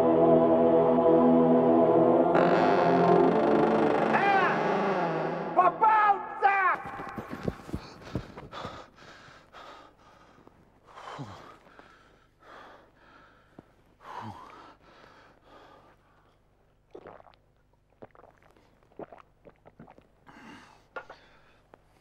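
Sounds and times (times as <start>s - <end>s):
man breathing heavily and sighing: 7.4s - 16.1s.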